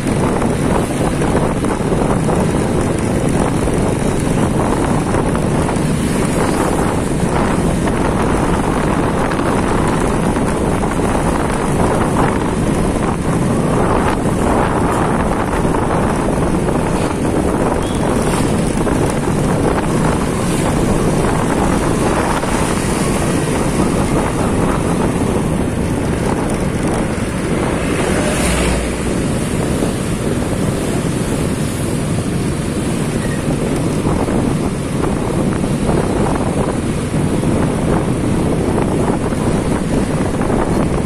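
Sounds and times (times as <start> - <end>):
motorbikes riding in traffic: 0.0 - 41.0
wind buffeting microphone: 0.0 - 41.0.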